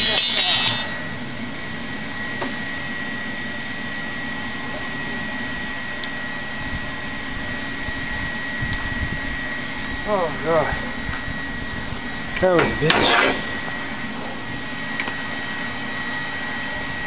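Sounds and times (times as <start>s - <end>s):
small electric motor whirring: 0.0s - 0.9s
faint high whine: 0.0s - 17.0s.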